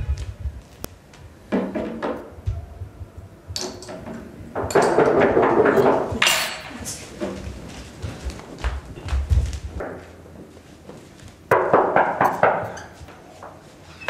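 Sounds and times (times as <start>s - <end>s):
glass clattering: 3.6s - 7.0s.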